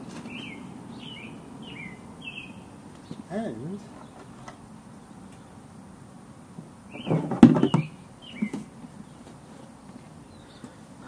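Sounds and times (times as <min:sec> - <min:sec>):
high bird chirps: 0:00.0 - 0:04.4, 0:06.9 - 0:09.2.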